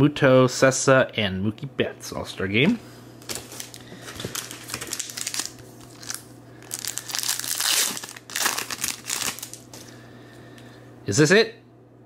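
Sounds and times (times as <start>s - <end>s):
foil wrapper crinkling: 3.2s - 9.9s.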